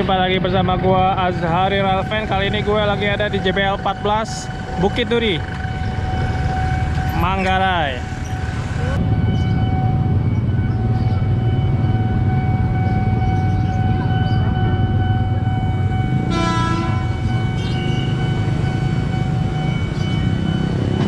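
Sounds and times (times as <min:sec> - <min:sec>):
low rumble of traffic: 0:00.0 - 0:21.0
level-crossing warning alarm: 0:01.2 - 0:21.0
train horn: 0:16.2 - 0:17.3.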